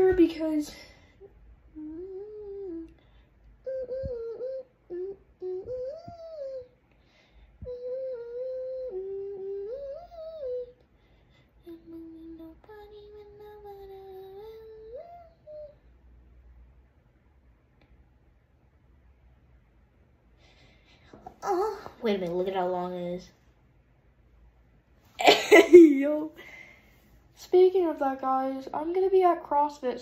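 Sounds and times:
person humming a tune: 1.7 - 6.8, 7.6 - 10.8, 11.6 - 15.8.

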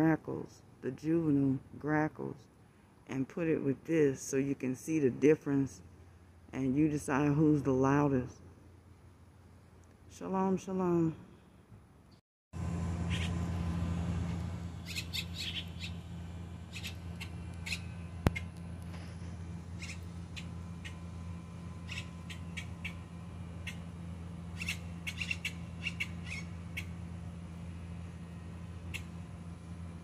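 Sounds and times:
steady low hum: 0.0 - 30.0
bird chicks calling: 13.0 - 13.4, 14.8 - 16.1, 16.7 - 18.6, 19.8 - 21.0, 21.8 - 23.0, 24.5 - 27.0.

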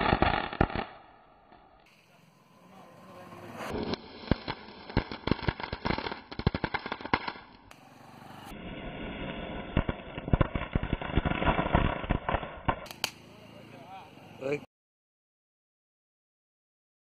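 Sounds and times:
firecrackers crackling: 0.0 - 14.6.

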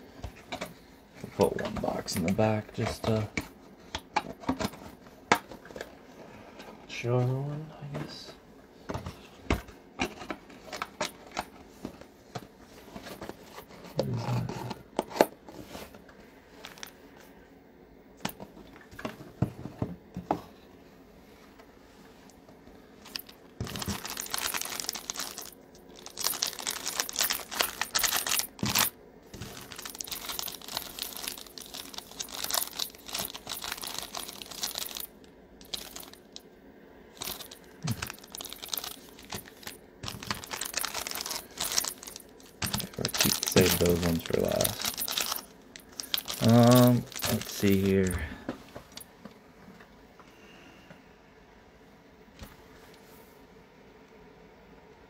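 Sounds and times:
foil packs crinkling: 23.1 - 36.4, 37.2 - 49.0.

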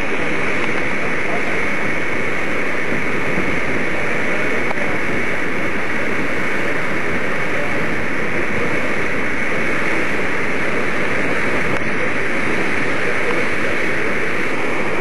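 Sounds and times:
ferry rushing noise: 0.0 - 15.0.

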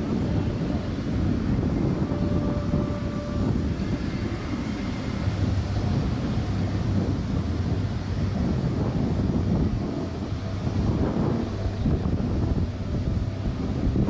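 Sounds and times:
propeller planes droning overhead: 0.0 - 14.0.

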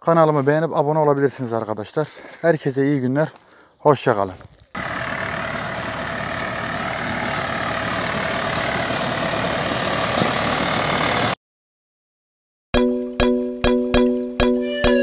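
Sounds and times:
tractor engine running: 4.8 - 11.4.

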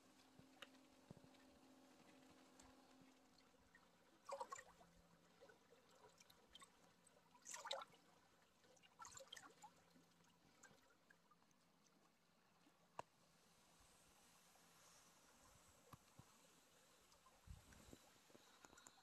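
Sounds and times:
water lapping on rocky shore: 0.4 - 11.2
water splashing: 3.4 - 10.9.

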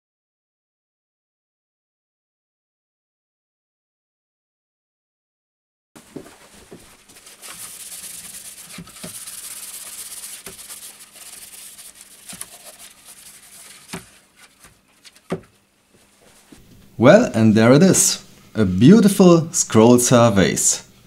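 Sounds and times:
cloth rag rubbing wood: 6.0 - 16.6.

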